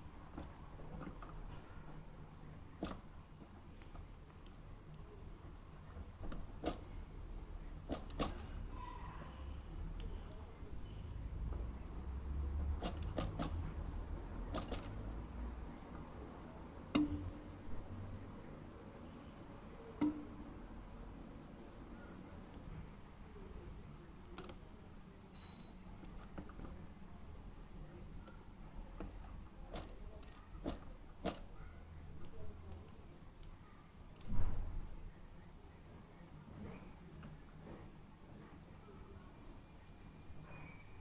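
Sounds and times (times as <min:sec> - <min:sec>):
low steady hum: 0:00.0 - 0:41.0
clicks and taps on wire cage: 0:12.8 - 0:13.6, 0:14.5 - 0:14.9, 0:29.7 - 0:31.4.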